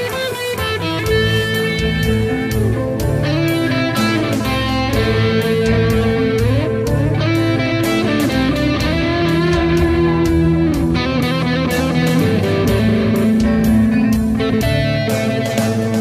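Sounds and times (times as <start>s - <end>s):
guitar-led music: 0.0s - 16.0s
steady drumbeat: 0.0s - 16.0s.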